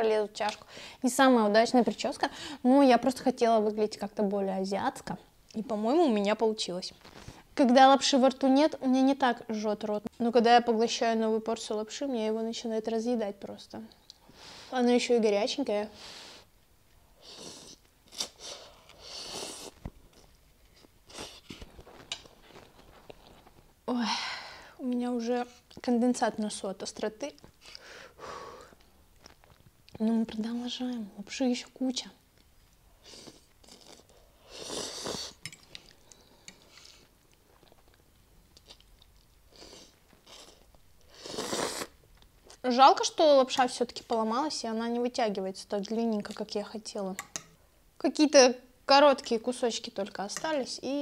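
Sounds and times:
person slurping noodles: 0:17.2 - 0:19.8, 0:33.0 - 0:35.4, 0:39.5 - 0:42.0
person chewing: 0:28.8 - 0:29.7, 0:33.2 - 0:42.6.

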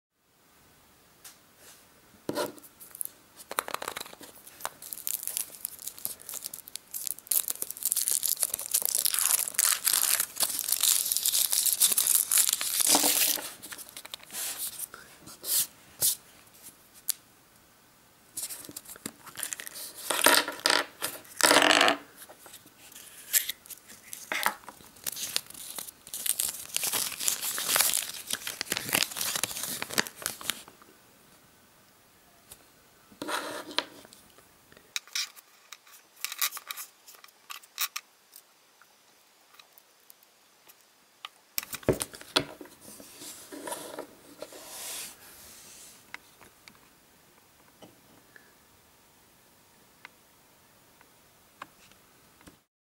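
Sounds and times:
paper leaflet crinkling: 0:02.8 - 0:14.9, 0:18.4 - 0:20.4, 0:22.2 - 0:30.7.

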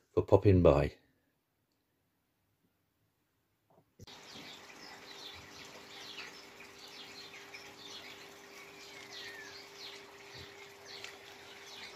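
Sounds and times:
small birds chirping: 0:04.0 - 0:11.9.

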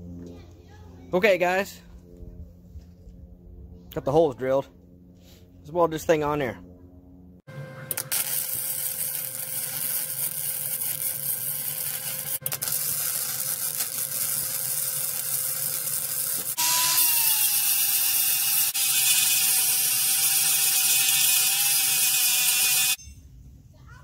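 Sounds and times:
angle grinder grinding metal: 0:07.9 - 0:23.0
arc welding crackling sizzle: 0:07.9 - 0:23.0.

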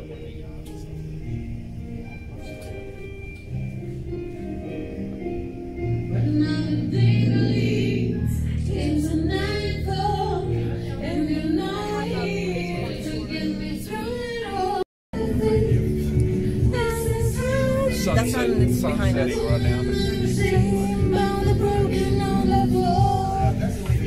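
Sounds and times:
song with sung vocals: 0:06.1 - 0:24.0.

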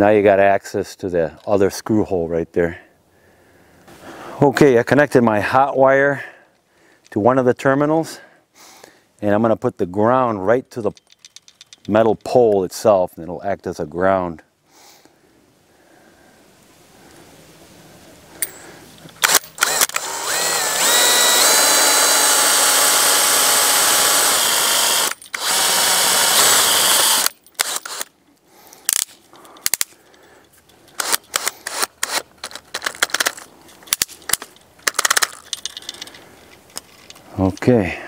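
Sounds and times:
cordless drill whining: 0:19.2 - 0:28.1, 0:30.9 - 0:32.2.

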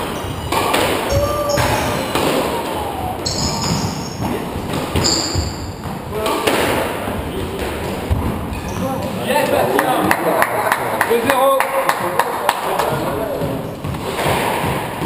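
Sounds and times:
squash ball hits: 0:00.0 - 0:02.6, 0:03.6 - 0:08.5, 0:12.9 - 0:15.0
sneakers squeaking on floor: 0:00.0 - 0:06.3, 0:07.2 - 0:09.2.

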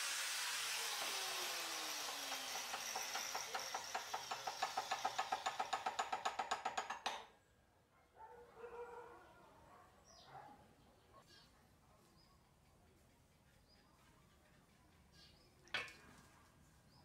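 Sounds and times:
angle grinder spinning down: 0:00.0 - 0:06.2.

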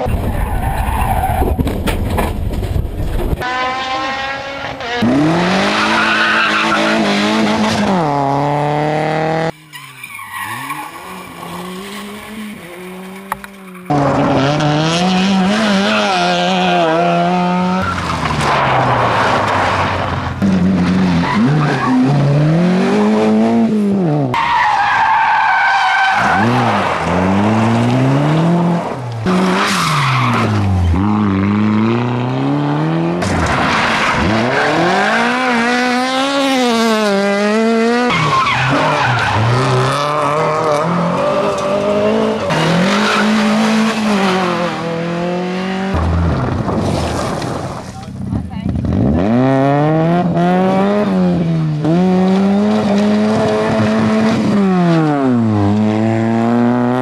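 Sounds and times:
rally car engines revving: 0:00.0 - 0:57.0
tyres sliding on gravel: 0:46.2 - 0:48.1.

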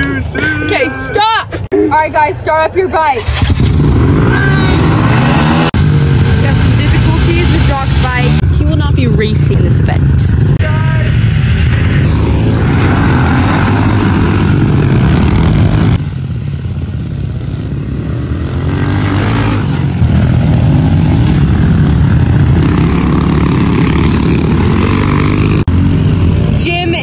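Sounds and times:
pit bike engines revving: 0:00.0 - 0:27.0.

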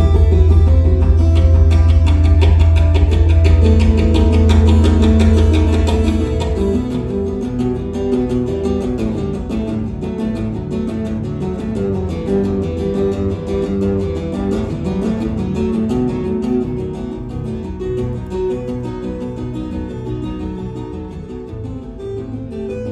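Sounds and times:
deep guitar bass note: 0:00.0 - 0:08.4
tapped acoustic guitar: 0:00.0 - 0:22.9.

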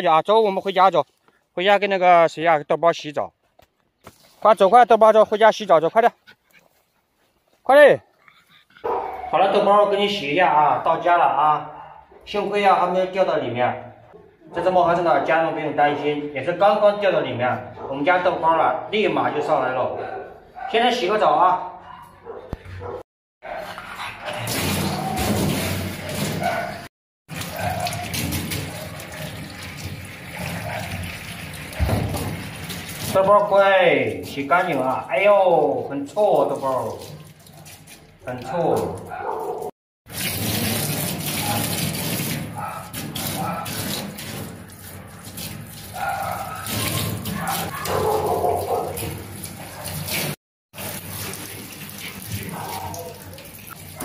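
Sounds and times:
shower water splashing on fur: 0:24.4 - 0:26.7, 0:27.3 - 0:54.0.

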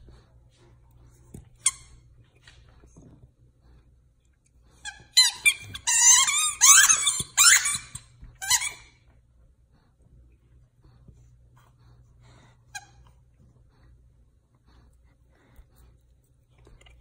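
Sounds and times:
dog toy squeaking: 0:04.9 - 0:08.9.

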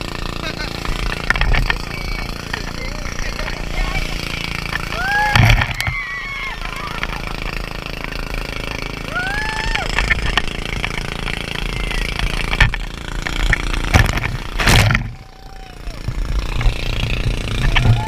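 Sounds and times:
person whooping: 0:04.9 - 0:07.3, 0:09.0 - 0:10.0, 0:15.1 - 0:16.2, 0:17.7 - 0:18.0.

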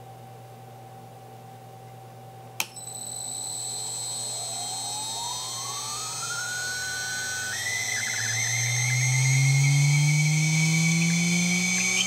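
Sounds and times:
spindle switch click: 0:02.6 - 0:02.8
high steady tones: 0:02.8 - 0:12.0
router spindle whine rising: 0:02.8 - 0:12.0.

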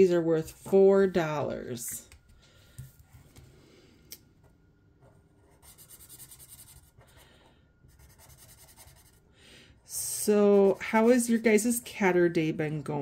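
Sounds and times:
marker scratching on paper: 0:05.4 - 0:07.2, 0:07.9 - 0:09.2.

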